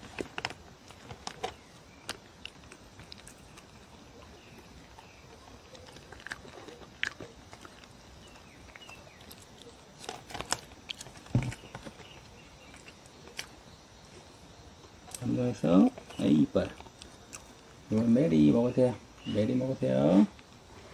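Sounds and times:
dog chewing and licking: 0.0s - 14.3s.

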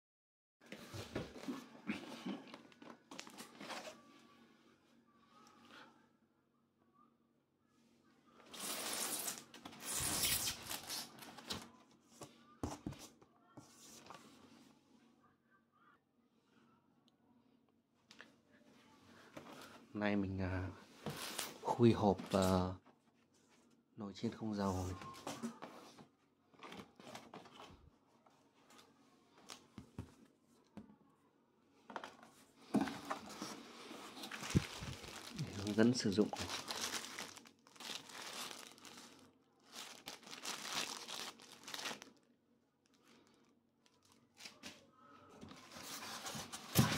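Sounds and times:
cardboard and plastic rustling: 0.6s - 4.1s, 21.0s - 23.6s, 24.6s - 30.3s, 31.8s - 42.2s, 45.4s - 46.9s.

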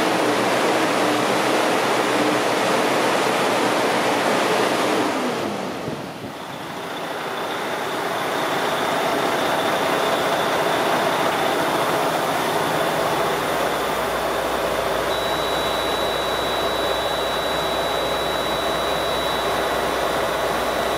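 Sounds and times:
diesel engine idling: 6.3s - 20.9s
high-pitched tone: 13.0s - 20.9s.

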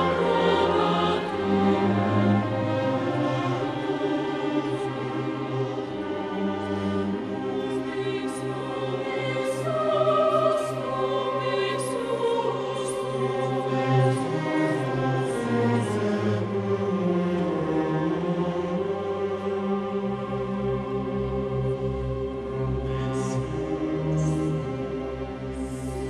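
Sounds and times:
orchestral accompaniment: 0.0s - 11.1s
choir singing: 0.0s - 26.0s.

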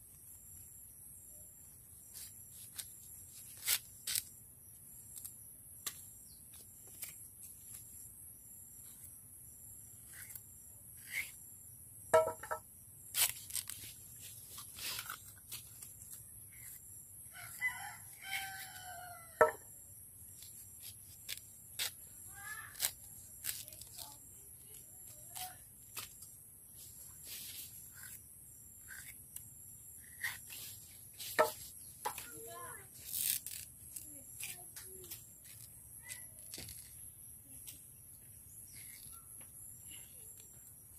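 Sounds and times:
knife clicking and cracking: 11.0s - 11.3s, 28.9s - 29.2s.

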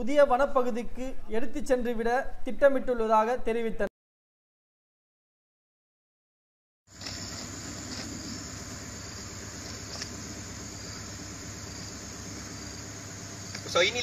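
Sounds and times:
constant hiss: 6.9s - 14.0s
low hum: 7.0s - 14.0s.

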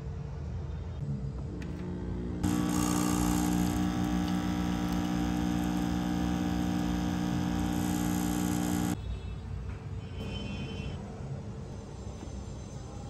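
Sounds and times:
coffee machine pump buzzing: 1.7s - 9.0s.

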